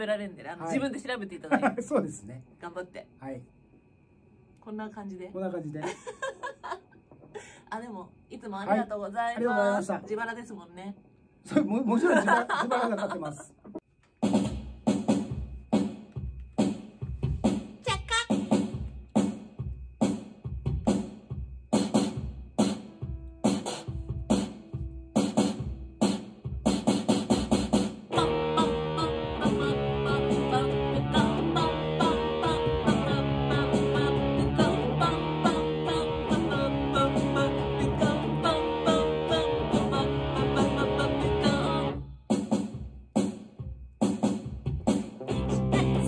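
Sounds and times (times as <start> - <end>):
fuzz electric guitar: 28.1 - 42.0, 45.2 - 46.0.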